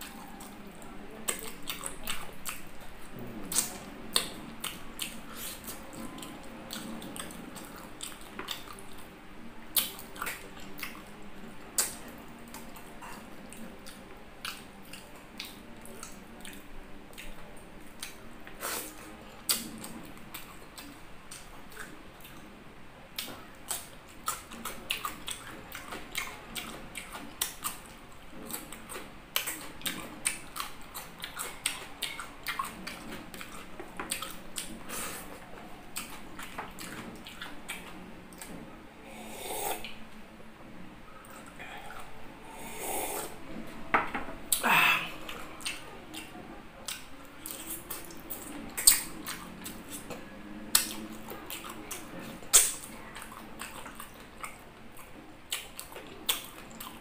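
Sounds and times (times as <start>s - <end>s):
wet chewing: 0.0s - 22.5s, 23.2s - 40.0s, 44.5s - 57.0s
faint low hum: 0.0s - 57.0s
lip smacks: 11.8s - 17.4s, 44.5s - 57.0s.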